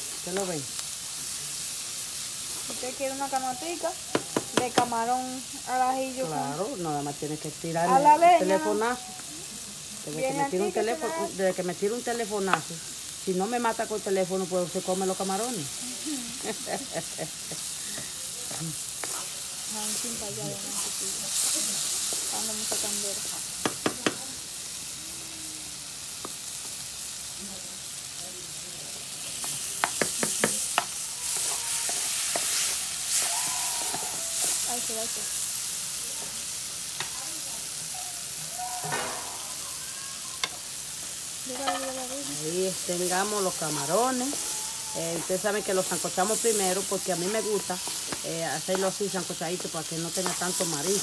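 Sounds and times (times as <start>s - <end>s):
vegetables sizzling in a frying pan: 0.0s - 51.0s
wooden spoon stirring: 29.8s - 34.7s, 43.0s - 51.0s.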